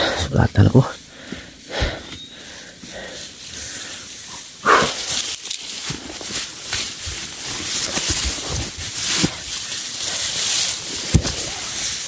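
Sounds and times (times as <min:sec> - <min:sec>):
tall grass rustling: 0:01.0 - 0:12.0
dull thumps: 0:11.0 - 0:11.6.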